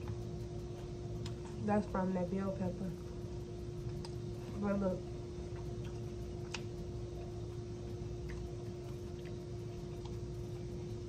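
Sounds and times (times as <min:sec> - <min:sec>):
steady low hum: 0:00.0 - 0:11.0
chewing crunches: 0:05.4 - 0:11.0.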